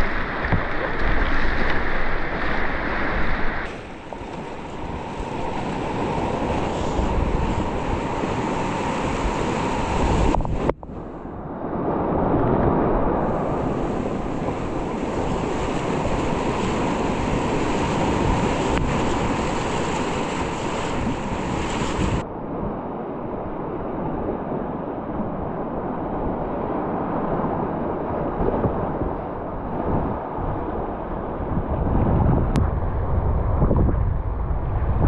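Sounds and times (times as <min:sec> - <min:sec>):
whitewater rapids rushing: 0:00.0 - 0:10.4, 0:13.0 - 0:22.2
wind buffeting microphone: 0:00.0 - 0:35.0.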